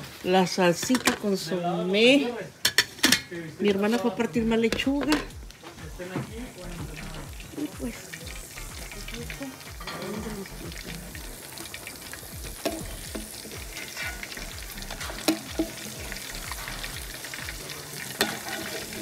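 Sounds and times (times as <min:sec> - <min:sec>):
food sizzling in a pan: 0:00.0 - 0:19.0
metal utensils clicking on pan: 0:00.7 - 0:01.4, 0:02.6 - 0:05.4, 0:07.6 - 0:19.0.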